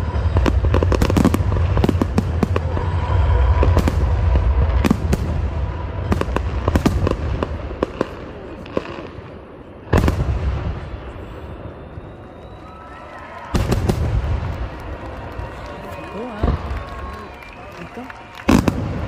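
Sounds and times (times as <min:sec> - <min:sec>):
low rumble: 0:00.0 - 0:07.8.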